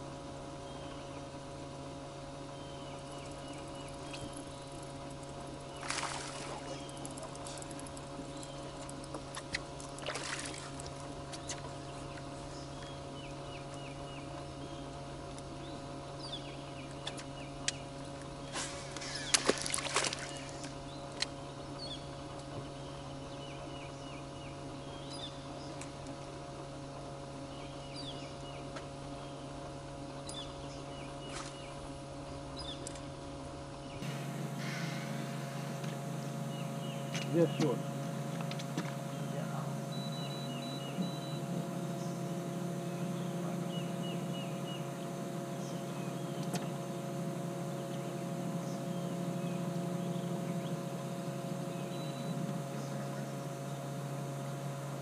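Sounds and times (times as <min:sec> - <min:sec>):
electric boat motor humming: 0:00.0 - 0:55.0
birds chirping: 0:00.4 - 0:10.2, 0:11.1 - 0:26.0, 0:33.7 - 0:55.0
knocks and clicks in boat: 0:03.0 - 0:14.6, 0:16.8 - 0:21.4, 0:22.0 - 0:22.8, 0:37.0 - 0:42.0, 0:45.6 - 0:47.1.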